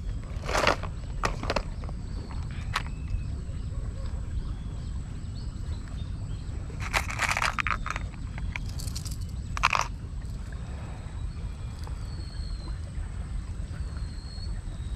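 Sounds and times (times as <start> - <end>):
plastic lures clicking and clattering: 6.8 - 9.9.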